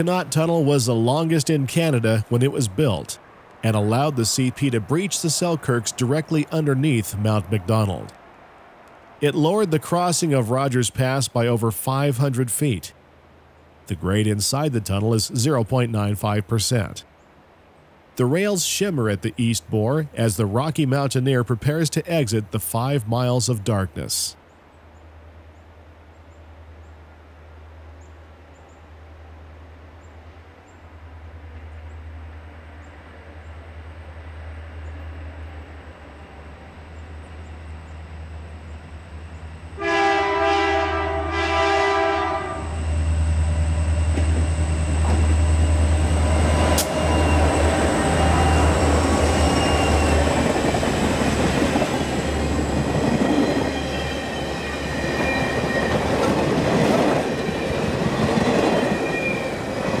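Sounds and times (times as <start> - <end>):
locomotive engine rumble: 31.0 - 60.0
train air horn: 39.8 - 42.8.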